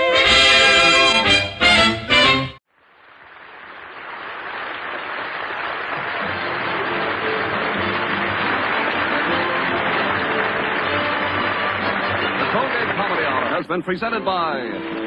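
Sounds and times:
studio audience applause: 0:03.2 - 0:14.8
band playing faintly: 0:06.2 - 0:15.0.

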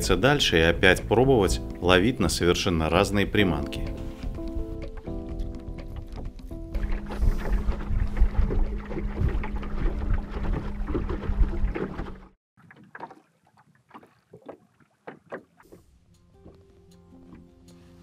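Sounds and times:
water slapping against hull: 0:03.0 - 0:16.6
outboard motor hum: 0:03.4 - 0:12.4
wind on microphone: 0:05.9 - 0:12.2.

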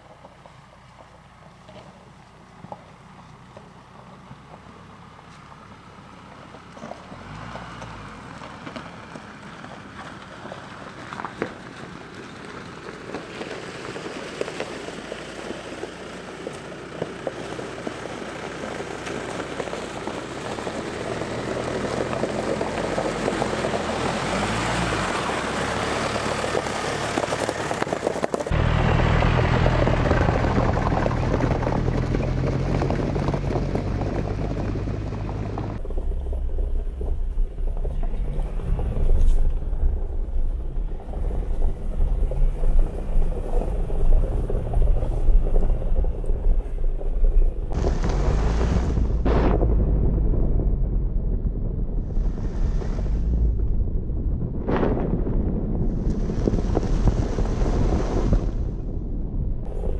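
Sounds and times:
vehicle engine and tyre noise: 0:00.0 - 0:59.9
low engine drone: 0:20.2 - 0:59.9
wind buffeting microphone: 0:29.4 - 0:59.9.

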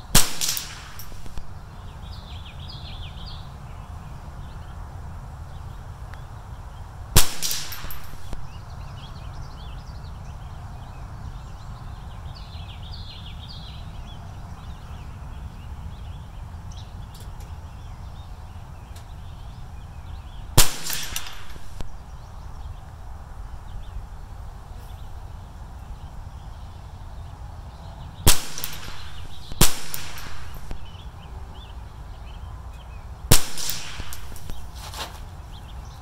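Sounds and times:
rifle shots: 0:00.1 - 0:01.5, 0:07.2 - 0:08.5, 0:20.6 - 0:22.0, 0:28.3 - 0:31.0, 0:33.3 - 0:34.8
steady low rumble: 0:28.1 - 0:32.2.

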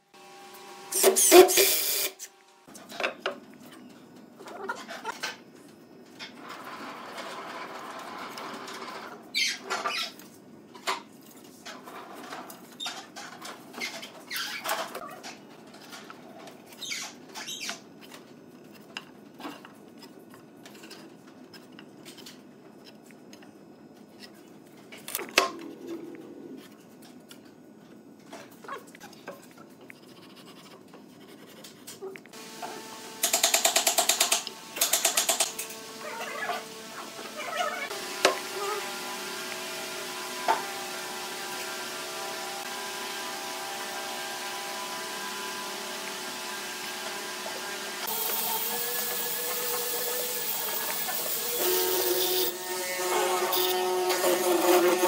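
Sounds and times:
pencil scratching on wood: 0:29.9 - 0:32.0.

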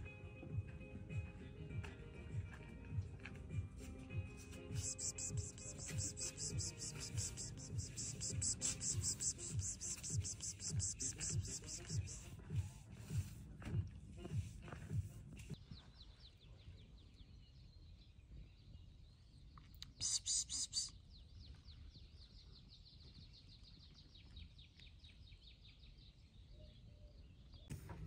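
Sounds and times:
low outdoor background hum: 0:00.0 - 0:28.0
bird trilling: 0:04.8 - 0:12.3
harsh high bird chirps: 0:04.8 - 0:12.3, 0:20.0 - 0:21.2.

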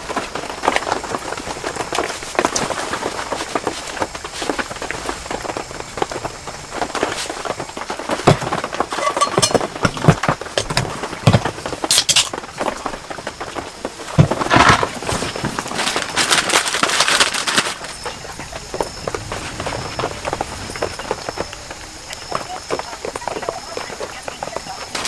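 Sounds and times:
rain pattering on tent fabric: 0:00.0 - 0:25.0
sharp knocks and clinks: 0:09.0 - 0:09.7.

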